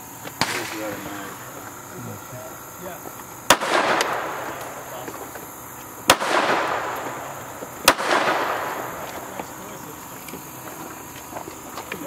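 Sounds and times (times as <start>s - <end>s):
pistol shots with ringing echo: 0.4s - 1.4s, 3.4s - 9.9s.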